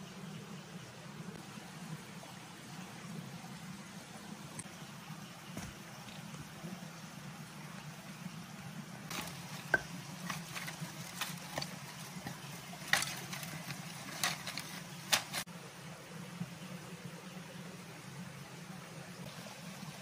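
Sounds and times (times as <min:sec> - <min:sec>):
dry leaves and sticks rustling: 0:09.1 - 0:15.5.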